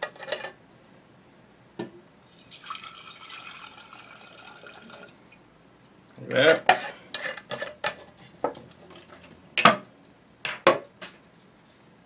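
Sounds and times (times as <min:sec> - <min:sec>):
liquid pouring into glass jar: 0:02.3 - 0:05.2.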